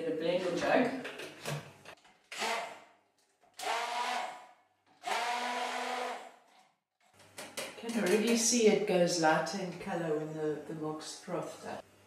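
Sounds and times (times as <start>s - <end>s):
stick blender motor frothing milk: 3.6s - 6.4s.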